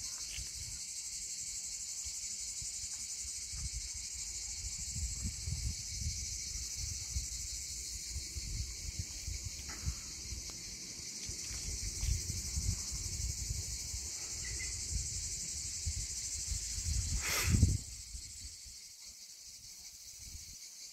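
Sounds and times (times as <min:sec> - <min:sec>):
high-pitched insect chorus: 0:00.0 - 0:20.9
wind rumble on microphone: 0:02.6 - 0:18.7.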